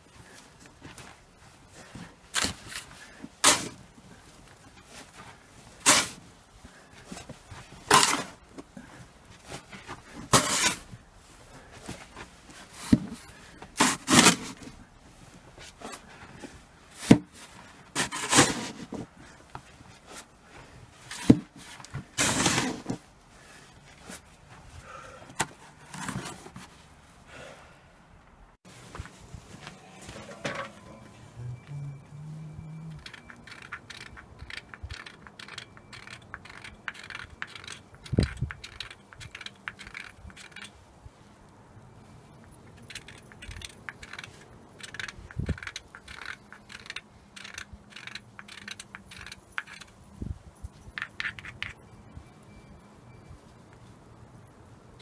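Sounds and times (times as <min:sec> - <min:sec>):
snow shovel scraping snow: 0:02.4 - 0:03.8, 0:04.9 - 0:06.3, 0:07.1 - 0:08.4, 0:09.5 - 0:11.0, 0:12.6 - 0:14.8, 0:15.6 - 0:19.1, 0:21.0 - 0:24.3, 0:28.7 - 0:31.4.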